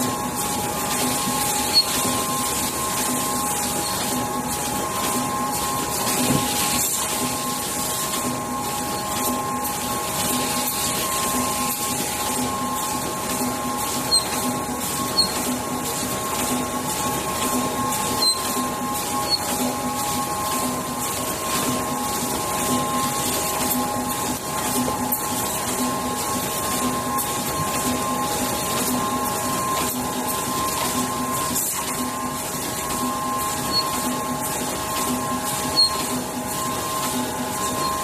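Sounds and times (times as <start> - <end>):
machine hum: 0.0 - 38.0.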